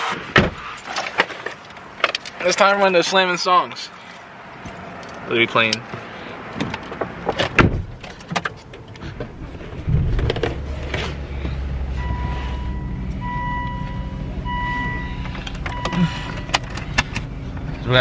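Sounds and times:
car engine starting and idling: 0:04.0 - 0:18.0
seat belt clicks and rustling: 0:06.6 - 0:09.4, 0:15.3 - 0:17.3
dashboard warning chime beeps: 0:11.9 - 0:16.6.

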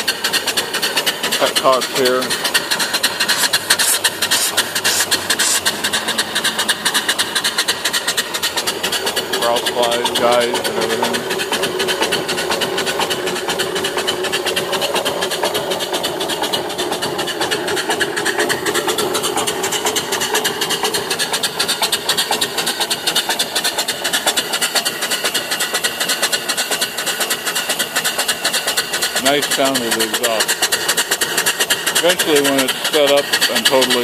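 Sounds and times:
steam engine exhaust chuffing: 0:00.0 - 0:34.0.

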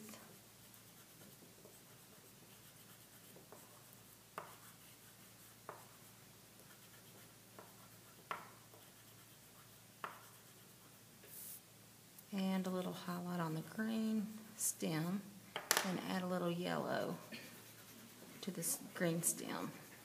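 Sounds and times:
chalk scratching on paper: 0:00.2 - 0:11.6, 0:16.2 - 0:20.0
chalk ticking on paper: 0:00.6 - 0:11.0, 0:17.0 - 0:20.0.

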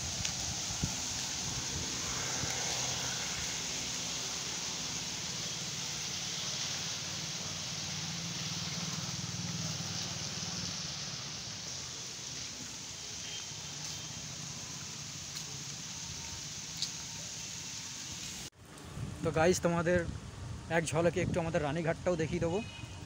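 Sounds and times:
vehicle passing: 0:00.0 - 0:13.0
road traffic rumble: 0:00.0 - 0:23.0
wet street hiss: 0:00.0 - 0:23.0.

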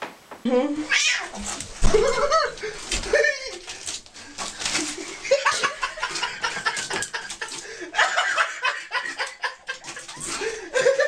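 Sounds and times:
person laughing: 0:01.8 - 0:03.7, 0:04.8 - 0:11.0.

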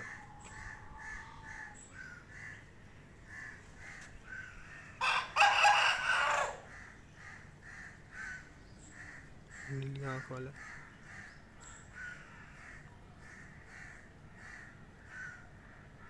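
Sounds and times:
faint bird calls: 0:00.0 - 0:05.1, 0:06.0 - 0:16.0
rooster crowing: 0:05.0 - 0:06.7.

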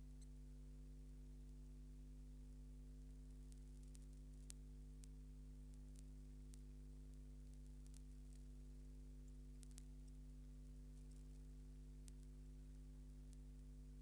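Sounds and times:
electrical mains hum: 0:00.0 - 0:14.0
faint clicks: 0:03.5 - 0:08.5, 0:09.2 - 0:10.2, 0:10.9 - 0:13.5.

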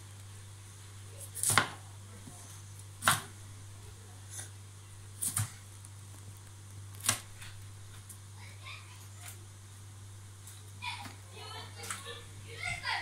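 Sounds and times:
knife chopping on cutting board: 0:01.4 - 0:01.8, 0:03.0 - 0:03.4, 0:05.2 - 0:05.5.

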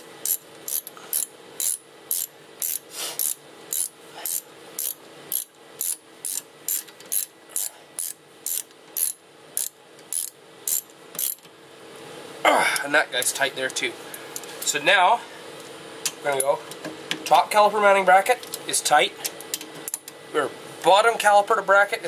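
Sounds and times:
ratchet wrench clicking: 0:00.2 - 0:11.5.

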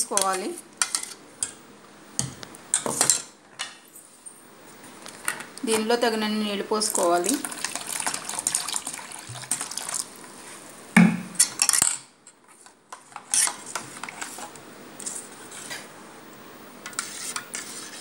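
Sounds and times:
metal spoon stirring in steel bowl: 0:00.0 - 0:01.5, 0:13.0 - 0:15.7, 0:16.8 - 0:18.0
loud knock: 0:11.0 - 0:11.4.

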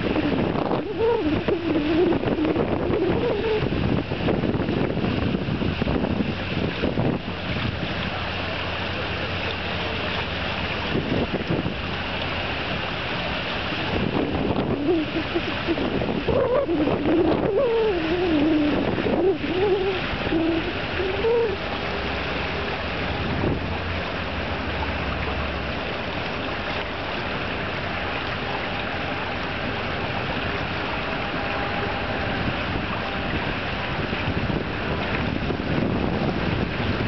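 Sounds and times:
wavering pitched sound: 0:00.0 - 0:03.7, 0:14.4 - 0:21.7
wind and water hiss: 0:00.0 - 0:37.0.

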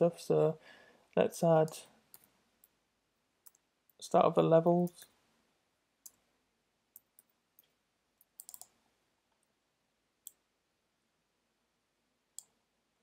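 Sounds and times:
computer keyboard and mouse clicks: 0:07.0 - 0:08.8.

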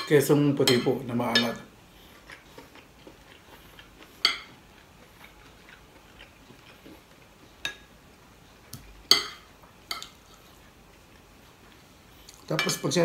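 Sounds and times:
cutlery clinking on ceramic plate: 0:09.1 - 0:10.2.

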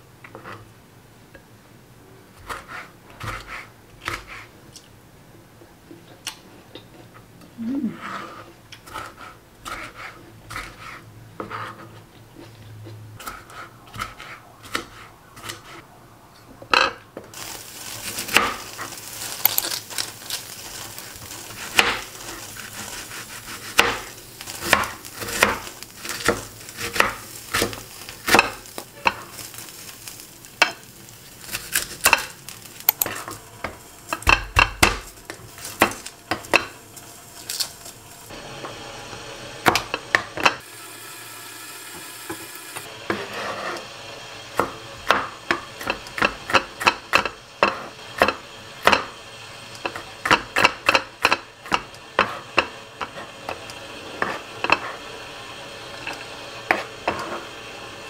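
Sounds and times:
steady sizzle: 0:13.2 - 0:58.0.

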